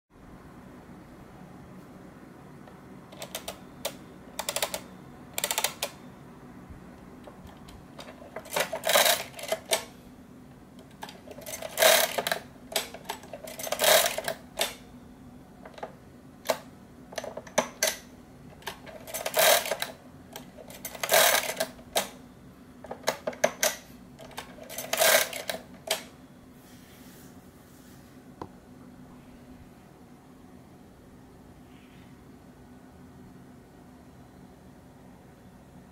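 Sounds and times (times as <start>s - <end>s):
mechanical calculator gear clattering: 3.1s - 6.0s, 7.3s - 9.9s, 10.8s - 14.8s, 15.7s - 22.2s, 22.8s - 26.1s.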